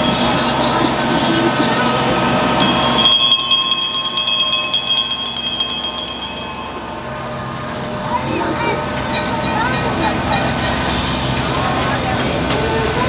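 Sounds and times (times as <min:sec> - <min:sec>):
train bell ringing rapidly: 0:00.0 - 0:10.6.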